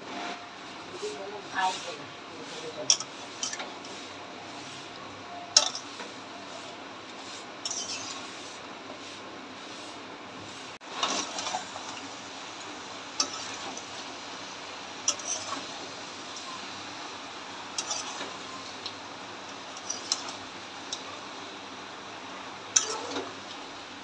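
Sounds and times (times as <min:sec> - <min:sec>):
metal spatula scraping pan: 0:01.5 - 0:04.9, 0:05.5 - 0:06.7, 0:07.3 - 0:08.6, 0:10.9 - 0:11.8, 0:13.2 - 0:13.9, 0:15.0 - 0:15.9, 0:17.7 - 0:18.6, 0:19.7 - 0:20.4, 0:22.7 - 0:23.4.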